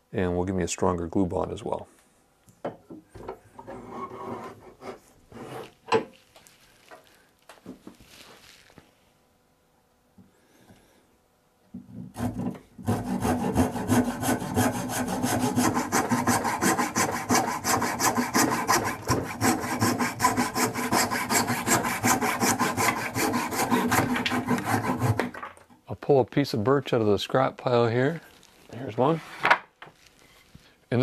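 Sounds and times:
hand saw cutting wood: 0:03.6 - 0:05.8, 0:12.0 - 0:25.5.

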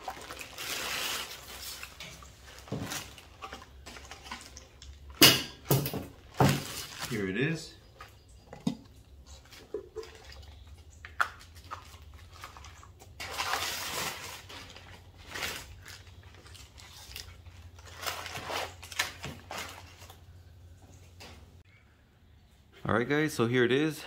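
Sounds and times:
plastic and paper crinkling: 0:00.0 - 0:05.2, 0:06.1 - 0:08.2, 0:09.3 - 0:20.3.

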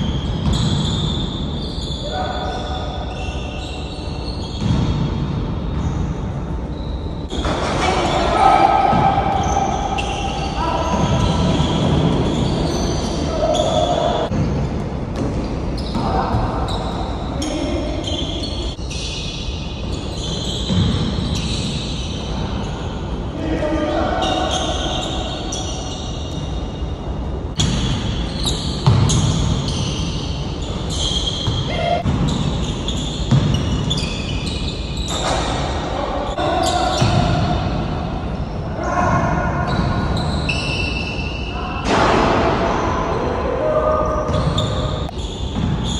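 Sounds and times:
basketball bouncing on court: 0:00.0 - 0:01.2, 0:04.4 - 0:06.0, 0:20.6 - 0:21.5, 0:27.6 - 0:30.1, 0:30.9 - 0:34.3, 0:36.9 - 0:37.8, 0:44.3 - 0:45.9
shoes squeaking on court: 0:00.0 - 0:23.0, 0:24.2 - 0:37.8, 0:39.6 - 0:41.5, 0:44.1 - 0:45.9
steady background noise: 0:00.0 - 0:45.9.

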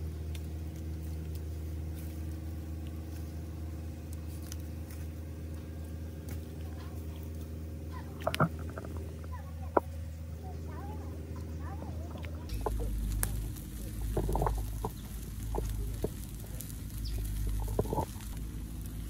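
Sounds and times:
steady low hum: 0:00.0 - 0:19.0
faint scattered clicks: 0:08.2 - 0:10.0, 0:11.4 - 0:19.0.

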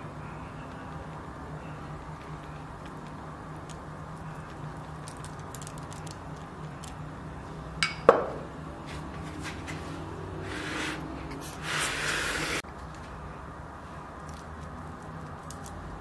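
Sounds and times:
steady low hum: 0:00.0 - 0:16.0
pastry brush dabbing dough: 0:08.9 - 0:12.6.

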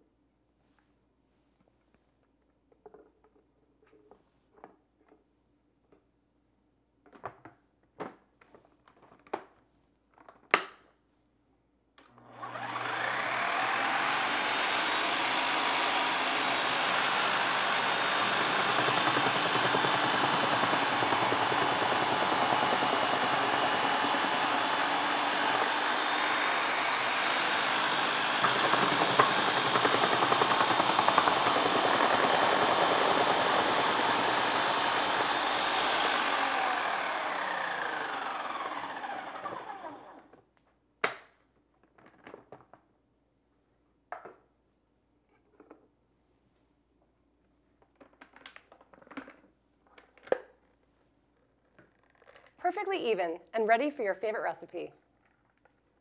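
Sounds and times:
food processor motor running: 0:12.1 - 0:40.2.

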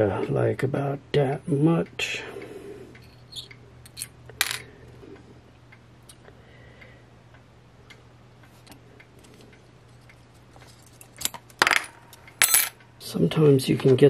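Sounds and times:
steady low hum: 0:00.0 - 0:14.0
small clicks of wire handling: 0:08.4 - 0:12.4.

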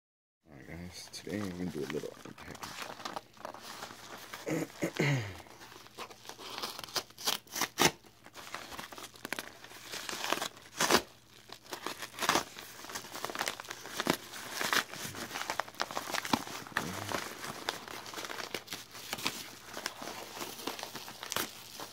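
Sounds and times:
paper envelope rustling and crinkling: 0:01.1 - 0:21.9
paper ripping: 0:01.3 - 0:21.9.

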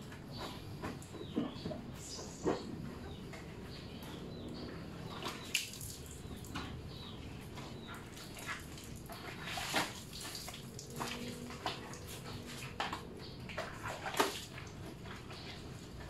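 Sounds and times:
water splashing on tiled floor: 0:05.1 - 0:06.6, 0:08.1 - 0:12.9, 0:13.5 - 0:14.8.

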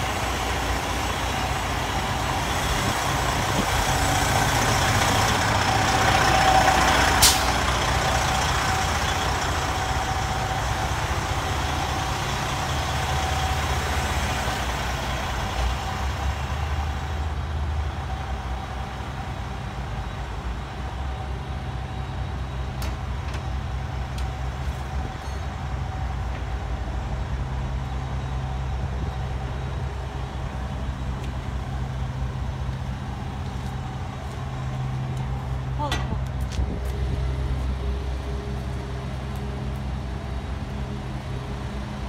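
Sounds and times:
diesel engine idling: 0:00.0 - 0:42.0.

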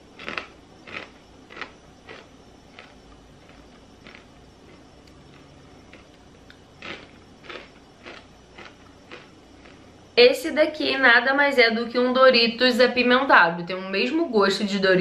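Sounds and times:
tortilla chip crunching: 0:00.0 - 0:09.9.

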